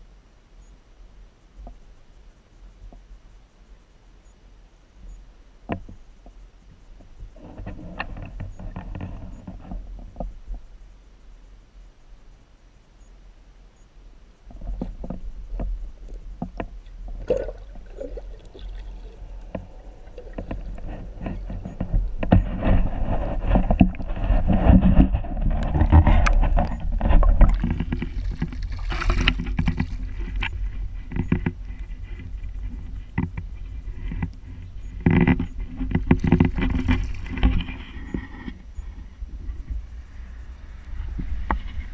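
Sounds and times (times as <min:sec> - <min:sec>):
steady low rumble: 0:00.0 - 0:41.9
water sloshing underwater: 0:14.5 - 0:41.9.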